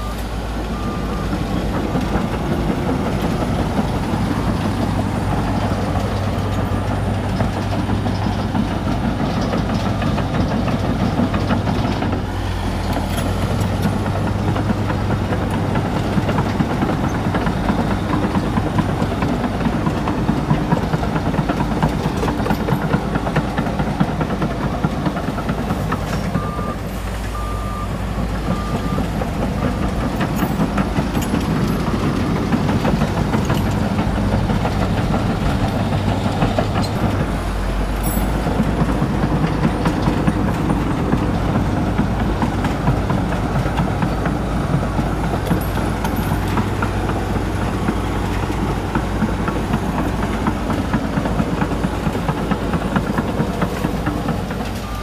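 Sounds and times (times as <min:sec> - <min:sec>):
reversing alarm beeping: 0:00.0 - 0:07.0, 0:26.3 - 0:35.0, 0:54.8 - 0:55.0
bulldozer diesel engine under load: 0:00.0 - 0:55.0
rattling and clatter: 0:28.7 - 0:55.0.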